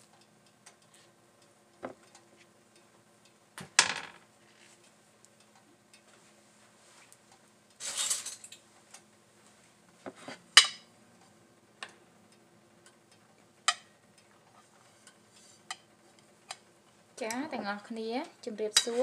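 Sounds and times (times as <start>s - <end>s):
plate scraping on countertop: 10.1s - 10.4s.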